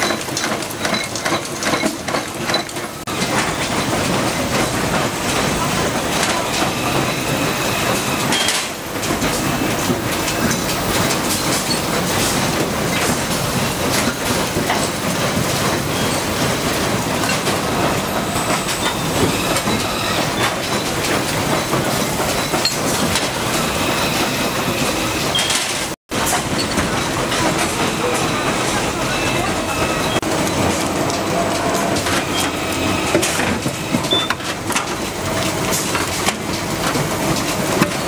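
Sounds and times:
factory machinery clicking: 0:00.0 - 0:38.0.

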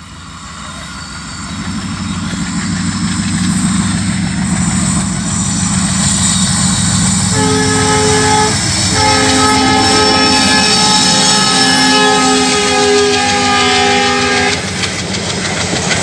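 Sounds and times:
diesel locomotive engine rumble: 0:00.0 - 0:16.0
locomotive horn blast: 0:07.2 - 0:14.7.

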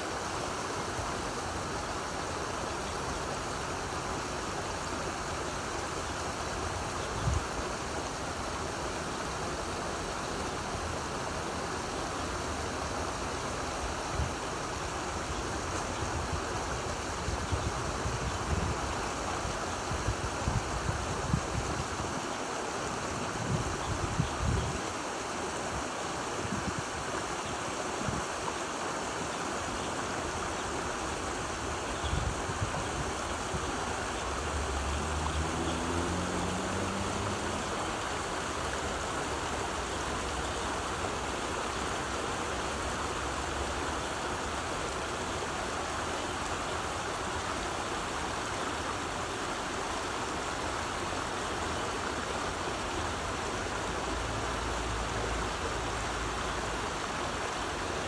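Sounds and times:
stream gurgling over stones: 0:00.0 - 0:58.0.

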